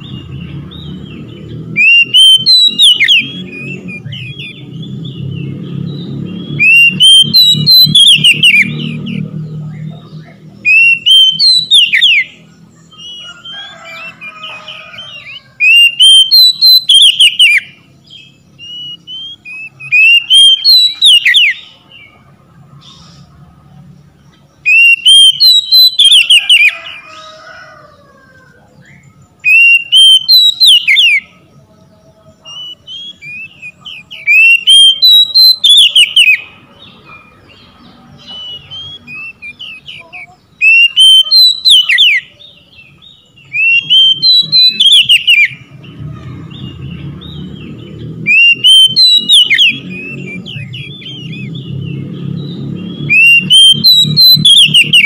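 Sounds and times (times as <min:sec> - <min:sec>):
bird singing whistled phrases: 0:01.8 - 0:05.2, 0:06.5 - 0:09.2, 0:10.3 - 0:13.4, 0:15.0 - 0:21.8, 0:24.6 - 0:26.7, 0:28.9 - 0:31.3, 0:32.4 - 0:36.4, 0:38.2 - 0:45.7, 0:48.3 - 0:51.7, 0:52.9 - 0:55.0.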